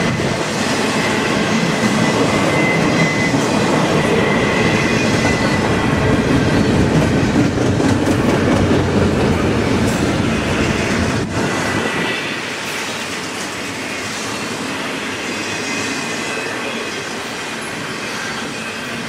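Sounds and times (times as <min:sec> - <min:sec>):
train wheels rumbling on track: 0:00.0 - 0:19.0
high wheel squeal: 0:00.6 - 0:07.0, 0:13.7 - 0:19.0.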